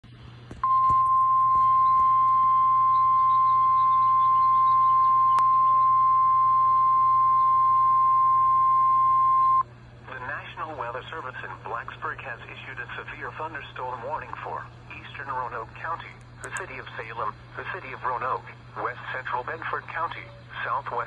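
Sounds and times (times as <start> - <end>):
radio alarm tone: 0.6 - 9.6.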